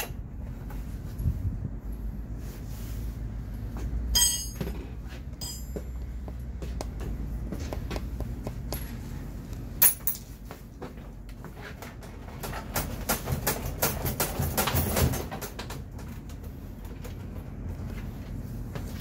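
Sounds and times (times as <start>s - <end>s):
steady low hum: 0.0s - 12.3s, 15.6s - 19.0s
metal tools clinking and knocking: 4.2s - 6.0s, 9.8s - 10.3s.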